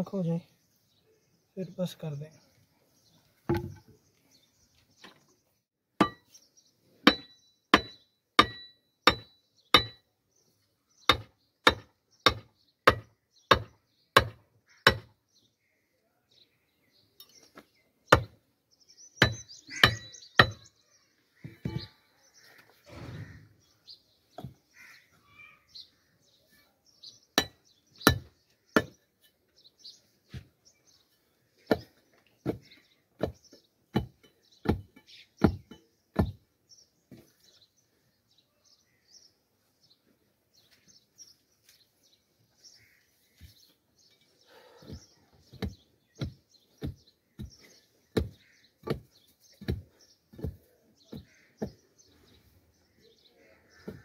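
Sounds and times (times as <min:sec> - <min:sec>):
soil scraping: 0:21.4 - 0:23.8.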